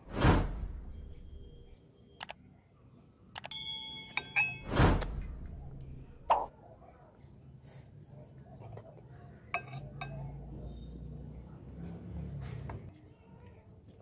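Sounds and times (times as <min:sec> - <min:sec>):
dishware clinking: 0:03.5 - 0:05.6, 0:09.5 - 0:10.4.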